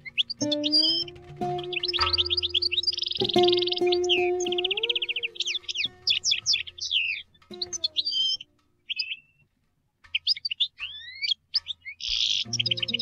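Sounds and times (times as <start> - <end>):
goldfinch twittering and trills: 0.0 - 9.4, 10.1 - 13.0
plucked oud notes: 0.0 - 13.0.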